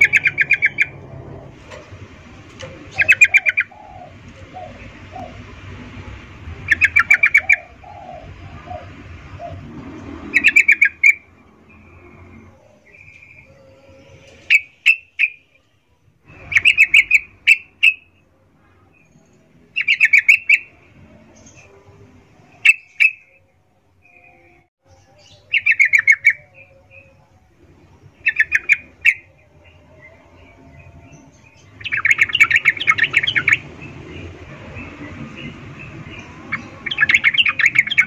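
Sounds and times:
bird chattering calls: 0:00.0 - 0:01.0, 0:02.9 - 0:05.4.

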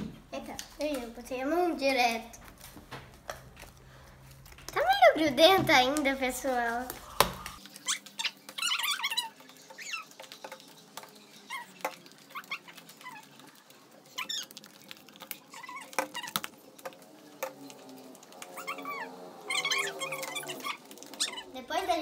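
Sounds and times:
slime squelching and clicking: 0:07.5 - 0:18.8.

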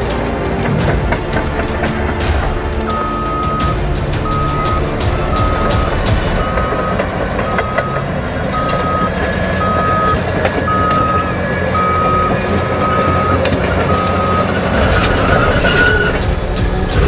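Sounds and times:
diesel engine running: 0:00.0 - 0:17.0
reversing alarm beeping: 0:02.8 - 0:16.2.

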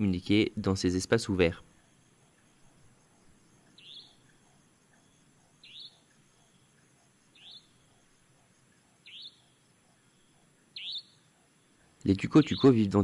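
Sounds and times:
faint outdoor background noise: 0:00.0 - 0:13.0
bird chirping upward notes: 0:03.8 - 0:04.3, 0:10.8 - 0:11.2.

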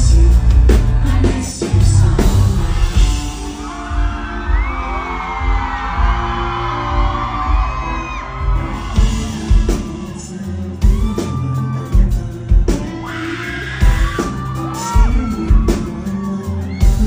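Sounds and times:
man singing through pa: 0:00.0 - 0:03.9, 0:08.9 - 0:17.0
backing track with deep bass: 0:00.0 - 0:17.0
heavy kick-drum beat: 0:00.0 - 0:17.0.

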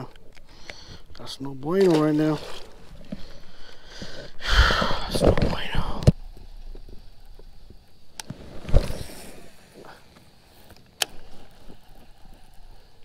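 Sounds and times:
fishing reel click: 0:10.5 - 0:13.0.

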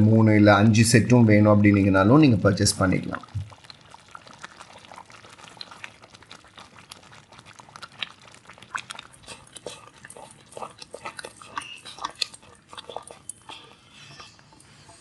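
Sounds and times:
wet pops and squelches: 0:03.2 - 0:13.4
spatula stirring thick food: 0:03.3 - 0:15.0.

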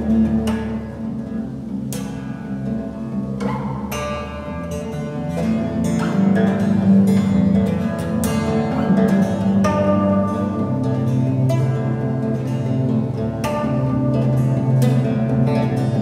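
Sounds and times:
acoustic bass guitar plucked notes: 0:00.0 - 0:16.0.

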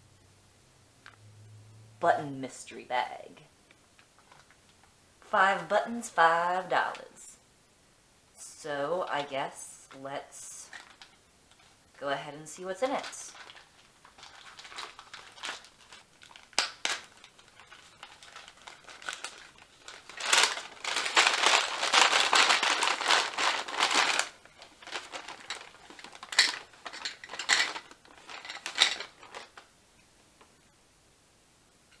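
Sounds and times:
paper bag rustling: 0:12.9 - 0:29.7.

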